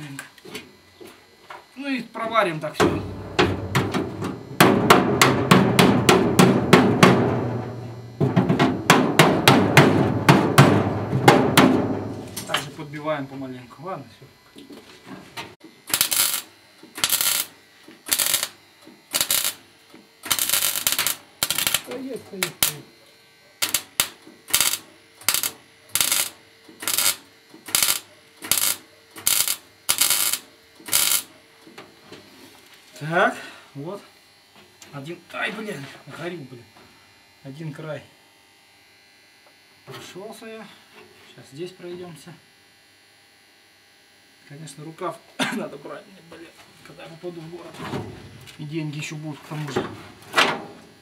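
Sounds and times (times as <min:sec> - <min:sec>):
steady low hum: 0:00.0 - 0:44.7
welding arc crackling: 0:01.7 - 0:15.0, 0:15.6 - 0:32.0
hammer tapping on sheet metal: 0:02.8 - 0:07.5, 0:08.2 - 0:12.0.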